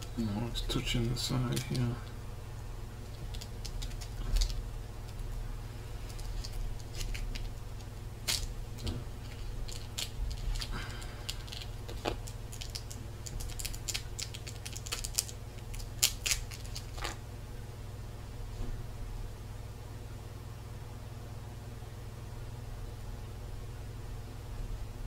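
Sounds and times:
paper crinkling and tearing: 3.0s - 5.4s, 6.0s - 17.2s.

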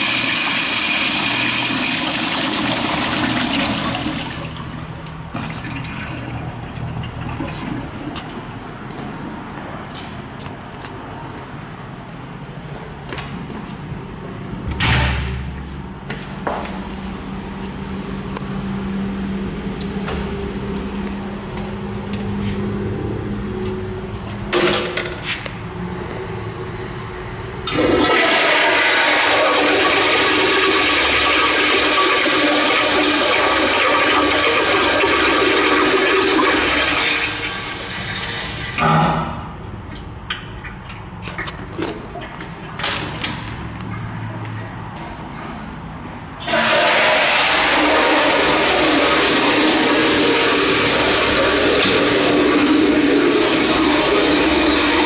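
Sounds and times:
toilet flushing: 0.0s - 9.0s, 27.6s - 43.4s, 46.4s - 55.0s.

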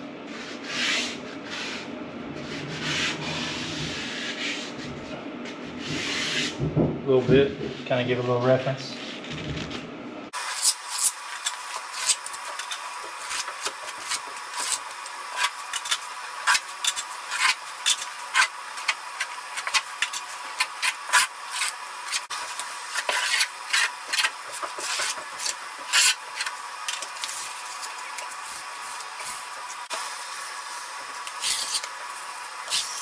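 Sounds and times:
putty knife scraping mortar: 10.5s - 29.4s, 31.2s - 32.0s.

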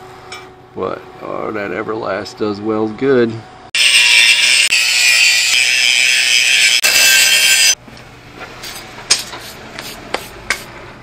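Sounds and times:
angle grinder grinding steel: 3.8s - 7.8s.

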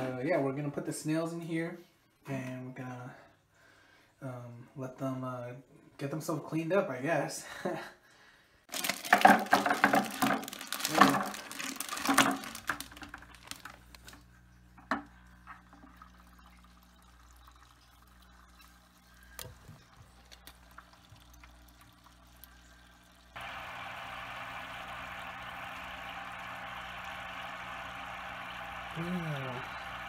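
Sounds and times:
snails and water splashing into bucket: 8.7s - 14.2s.

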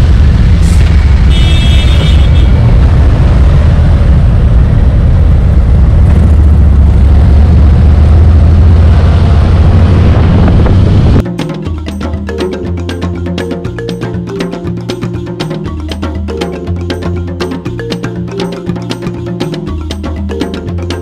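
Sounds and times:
motorcycle engine drone: 0.0s - 11.2s
wind rush: 0.0s - 11.2s.

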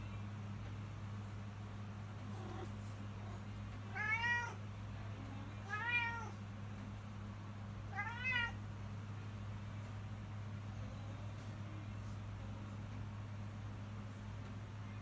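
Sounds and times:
cat meowing: 3.9s - 4.6s, 5.6s - 6.4s, 7.9s - 8.6s.

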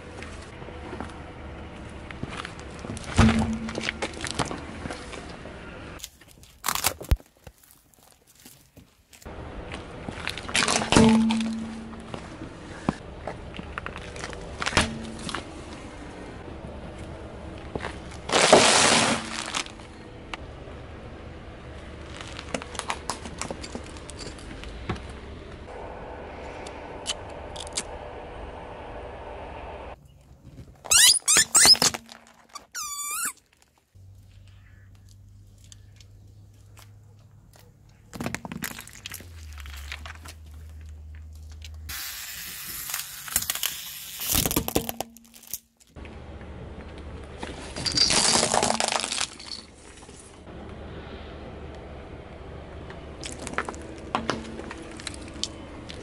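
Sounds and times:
tyre crushing objects: 2.4s - 5.3s, 17.8s - 19.8s
car engine running low: 9.3s - 18.5s, 19.1s - 30.0s.

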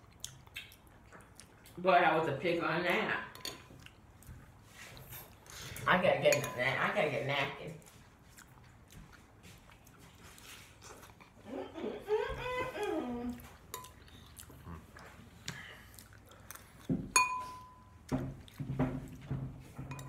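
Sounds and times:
spoon clinking on ceramic bowl: 6.3s - 6.8s, 17.1s - 17.9s, 19.8s - 20.0s.

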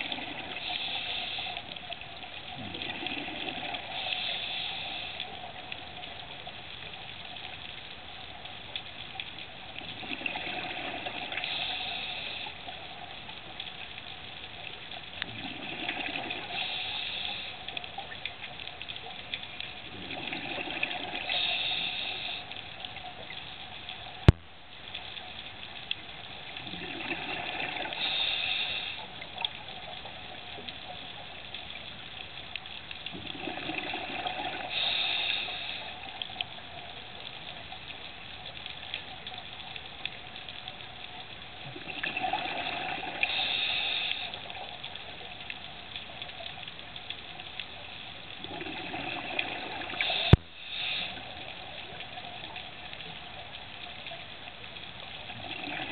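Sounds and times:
scuba regulator breathing underwater: 0.0s - 1.9s, 2.5s - 5.5s, 10.0s - 12.7s, 15.3s - 17.8s, 19.9s - 22.7s, 26.8s - 29.2s, 33.3s - 36.1s, 42.0s - 44.5s, 48.5s - 51.6s.

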